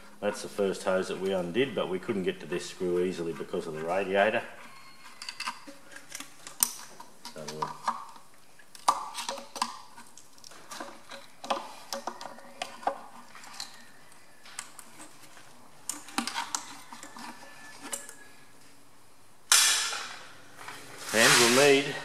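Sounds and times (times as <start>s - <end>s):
loud scuffing noise: 20.6s - 22.0s.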